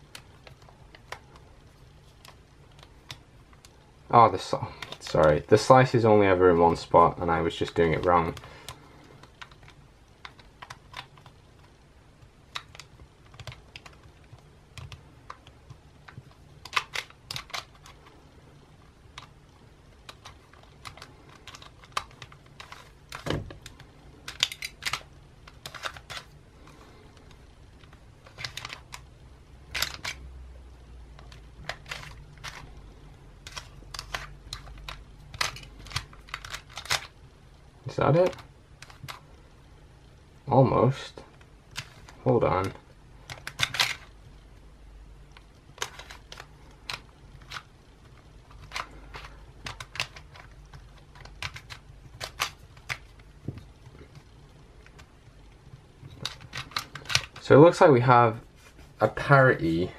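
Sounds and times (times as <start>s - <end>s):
plastic puzzle pieces clicking: 7.6s - 18.2s, 19.1s - 29.1s, 29.7s - 30.2s, 31.1s - 37.2s, 38.1s - 39.3s, 41.4s - 44.2s, 45.3s - 55.1s, 56.0s - 57.4s.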